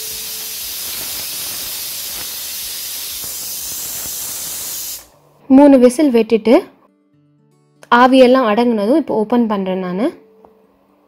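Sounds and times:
pressure cooker whistle hissing: 0.0 - 5.1.

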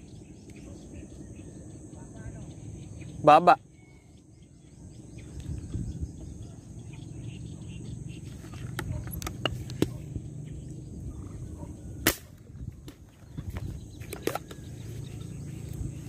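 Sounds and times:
airgun shot: 12.0 - 12.5.

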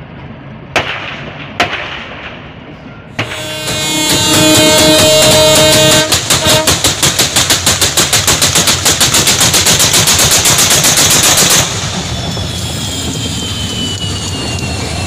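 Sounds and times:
diesel locomotive running: 0.0 - 0.8, 2.4 - 15.0
firecracker bangs on rails: 0.8 - 2.4, 3.2 - 12.0.

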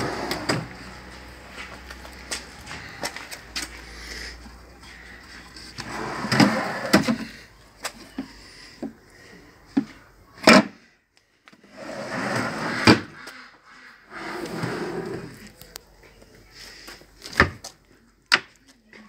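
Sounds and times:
wooden drawers sliding: 0.0 - 0.7, 5.8 - 7.3, 11.7 - 13.1, 14.1 - 15.4.

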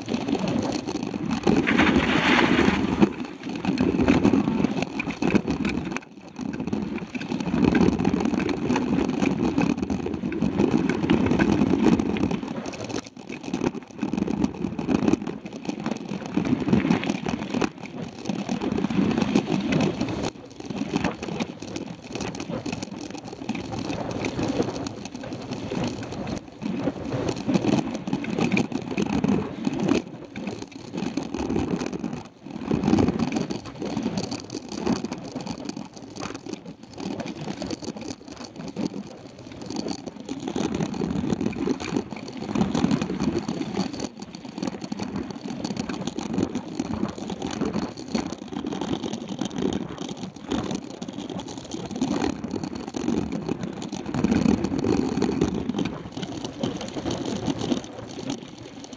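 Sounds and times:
bike knocking and rattling: 0.0 - 58.9
wind and tyre noise: 0.0 - 58.9.

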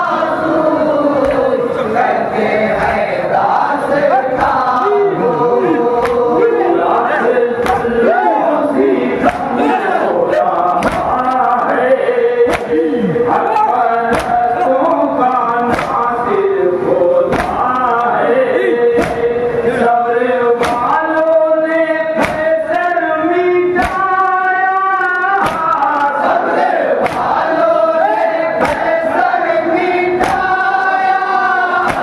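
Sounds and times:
crowd joining in chant: 0.0 - 32.0
men chanting into a microphone: 0.0 - 32.0
chest-beating slaps in unison: 1.2 - 1.5, 2.8 - 3.1, 4.4 - 4.8, 5.9 - 6.4, 7.6 - 8.2, 9.2 - 11.7, 12.4 - 14.8, 15.5 - 16.4, 17.3 - 18.1, 18.9 - 19.5, 20.6 - 21.4, 22.2 - 22.9, 23.7 - 24.4, 25.1 - 26.3, 26.9 - 27.5, 28.2 - 32.0.

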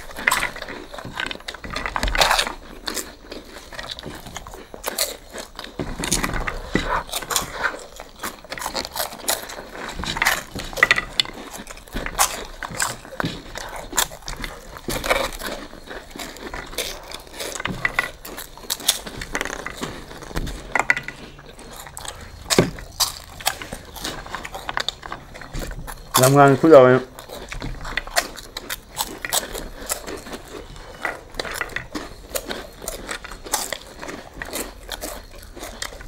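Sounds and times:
people chewing and smacking: 0.0 - 36.0.

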